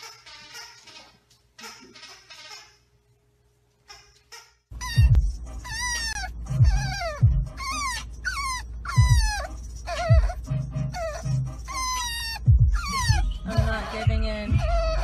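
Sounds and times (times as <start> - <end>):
animal whining calls: 4.8 - 15.0
music with deep beat: 4.8 - 15.0.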